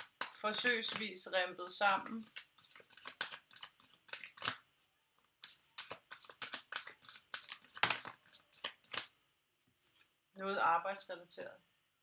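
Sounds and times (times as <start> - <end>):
cards being shuffled: 0.0 - 1.3, 1.9 - 4.6, 5.2 - 9.1.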